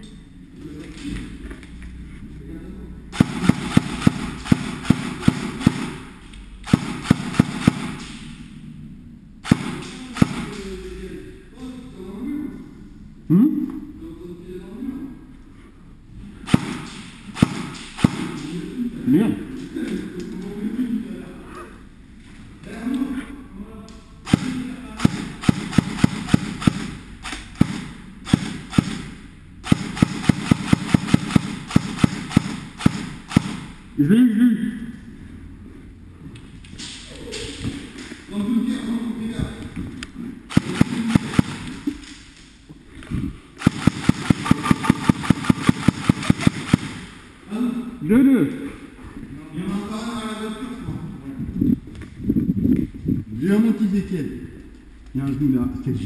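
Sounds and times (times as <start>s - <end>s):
airsoft rifle shots: 3.1s - 8.5s, 9.4s - 10.8s, 16.4s - 18.6s, 24.2s - 33.8s, 40.5s - 41.9s, 43.6s - 47.2s.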